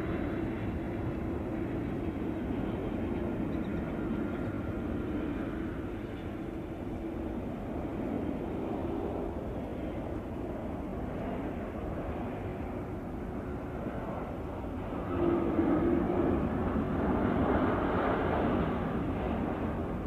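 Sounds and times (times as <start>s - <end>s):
distant jet engines rushing: 0.0s - 20.0s.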